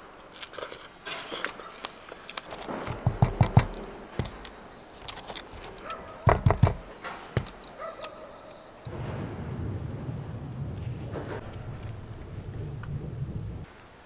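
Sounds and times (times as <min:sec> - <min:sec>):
strawberries being bitten: 0:00.2 - 0:08.2
low outdoor rumble: 0:06.7 - 0:14.0.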